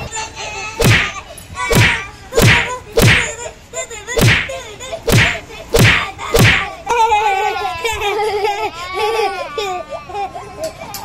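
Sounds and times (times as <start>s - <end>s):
punch hits swish and whack: 0.8s - 3.4s, 4.2s - 6.7s.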